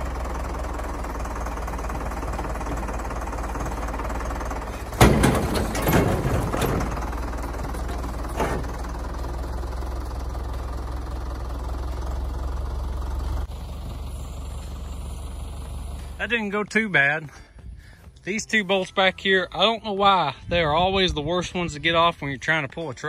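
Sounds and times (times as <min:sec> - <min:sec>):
tractor engine running: 0:00.0 - 0:23.0
metal banging and clattering: 0:04.7 - 0:08.9.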